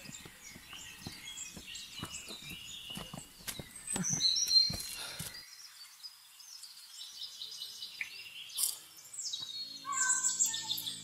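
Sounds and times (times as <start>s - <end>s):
footsteps on stone steps: 0.0s - 5.4s
small birds chirping: 0.0s - 11.0s.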